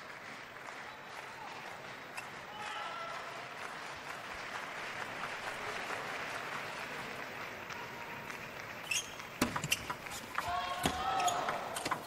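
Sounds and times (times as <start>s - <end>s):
crowd noise and applause: 0.0s - 12.0s
shoe squeak: 8.8s - 10.3s.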